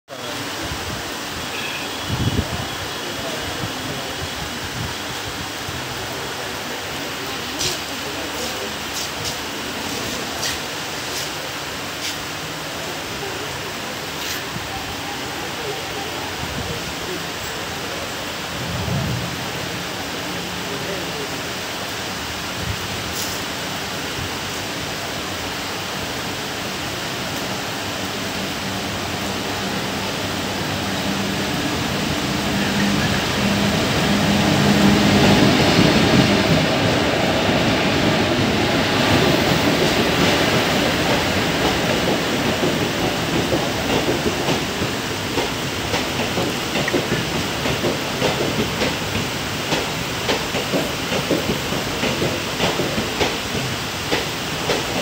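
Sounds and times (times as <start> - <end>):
heavy rain hiss: 0.1 - 55.0
electric locomotive hum: 24.8 - 55.0
train wheels clacking over rail joints: 39.1 - 55.0.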